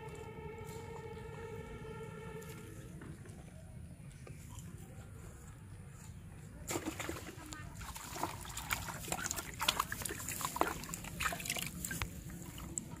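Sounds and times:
fish splashing in bucket: 6.7s - 12.7s.

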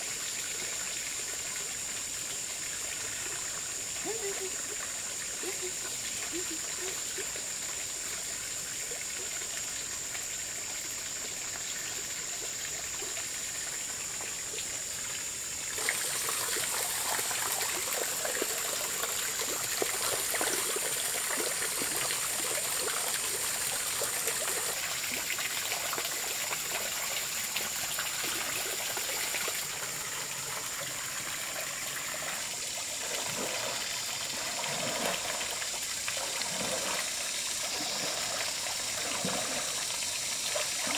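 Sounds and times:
water trickling: 0.0s - 40.9s.

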